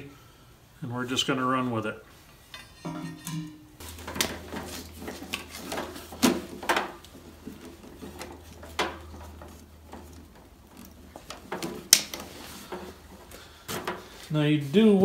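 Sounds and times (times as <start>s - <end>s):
low steady hum: 0.0s - 14.8s
metal gear knocking and clanking: 2.5s - 13.3s.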